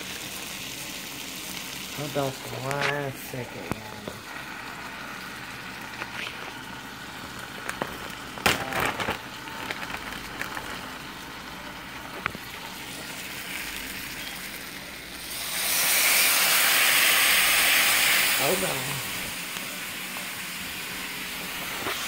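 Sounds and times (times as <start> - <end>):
onions sizzling in a pan: 0.0 - 22.0
loud steady hiss: 12.5 - 22.0.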